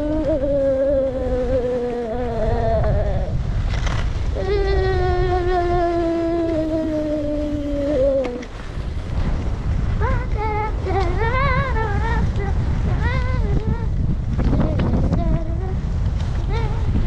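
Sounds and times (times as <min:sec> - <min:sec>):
person humming long notes: 0:00.0 - 0:03.4, 0:04.3 - 0:08.6, 0:10.0 - 0:17.0
wind buffeting microphone: 0:00.0 - 0:17.0.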